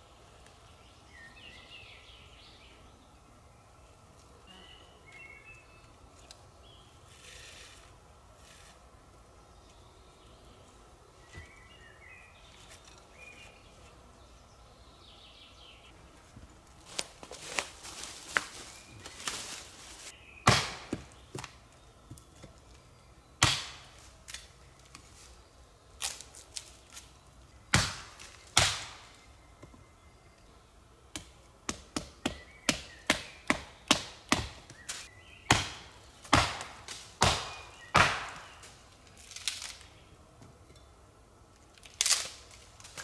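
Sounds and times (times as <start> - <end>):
footsteps through dry leaves: 16.7 - 20.2
hand tool chopping wood: 20.5 - 21.6, 23.4 - 24.4, 27.7 - 29.0, 31.2 - 38.6.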